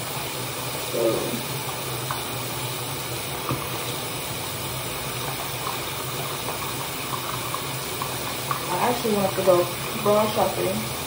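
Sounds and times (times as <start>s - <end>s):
tap running into sink: 1.6s - 2.3s, 3.2s - 4.0s, 5.1s - 10.0s.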